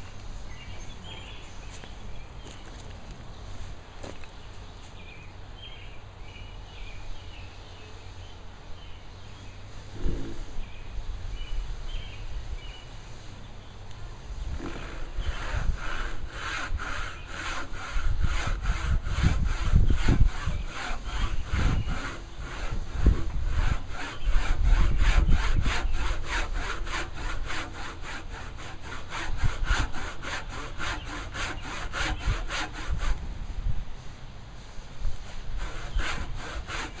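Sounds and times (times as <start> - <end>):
handsaw cutting wood: 14.5 - 33.2, 35.3 - 37.0.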